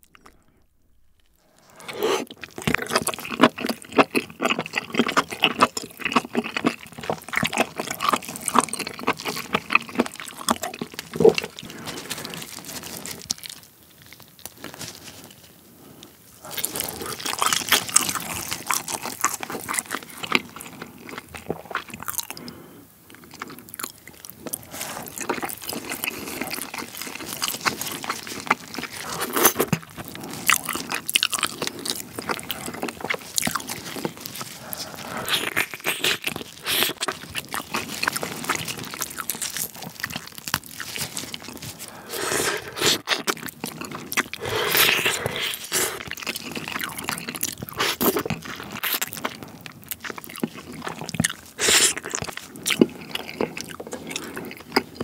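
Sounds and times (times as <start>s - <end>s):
meat chewed off the bone: 0.0s - 55.0s.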